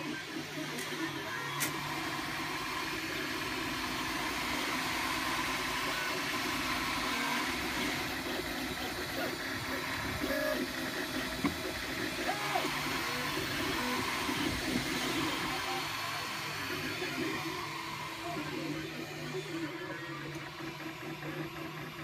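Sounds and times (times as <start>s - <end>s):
three d printer humming: 0.0s - 22.0s.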